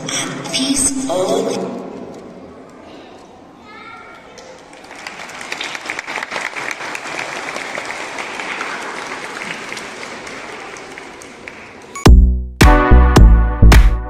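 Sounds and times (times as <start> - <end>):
audience applauding: 4.6 - 12.0
electronic dance music: 12.1 - 14.0.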